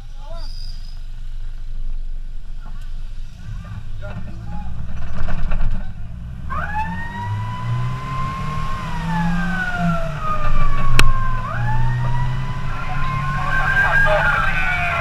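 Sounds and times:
vehicle engine driving: 0.0 - 15.0
siren wailing: 6.5 - 15.0.

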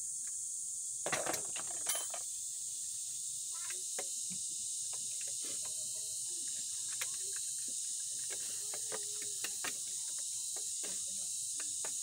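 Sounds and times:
high-pitched insect drone: 0.0 - 12.0
hand tools clinking on metal: 1.1 - 2.3.

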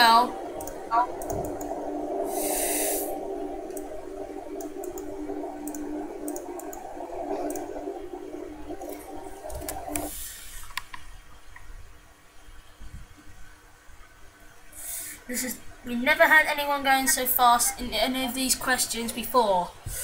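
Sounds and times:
game show suspense music drone: 0.0 - 10.2.

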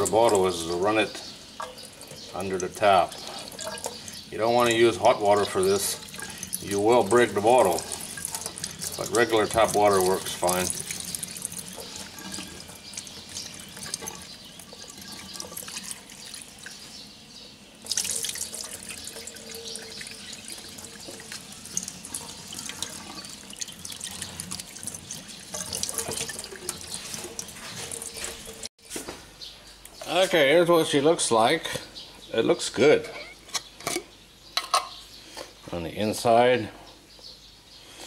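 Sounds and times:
tap water running: 0.0 - 16.9, 17.8 - 28.7
water splashing into sink: 1.6 - 16.5, 17.8 - 28.7.

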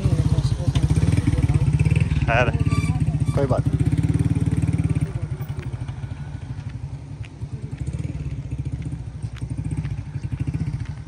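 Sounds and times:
small motorcycle engine running: 0.0 - 6.4, 7.4 - 11.0.

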